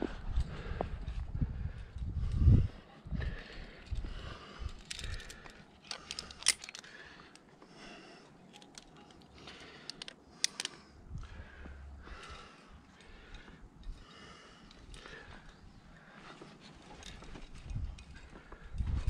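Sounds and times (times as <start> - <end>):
metal climbing hardware clinking: 3.5 - 7.4, 8.4 - 11.0, 12.2 - 19.0.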